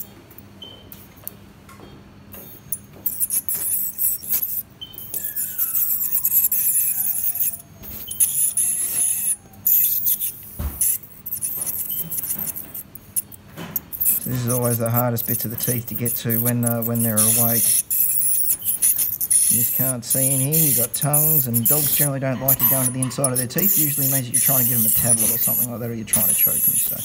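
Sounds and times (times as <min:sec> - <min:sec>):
dental scaler hissing buzz: 0:02.7 - 0:27.0.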